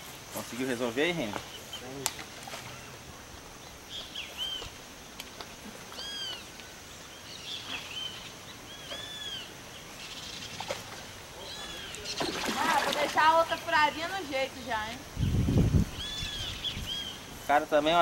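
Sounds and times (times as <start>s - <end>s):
steady outdoor hiss: 0.0s - 18.0s
bird whistling calls: 6.0s - 6.5s, 7.2s - 9.5s, 15.9s - 17.3s.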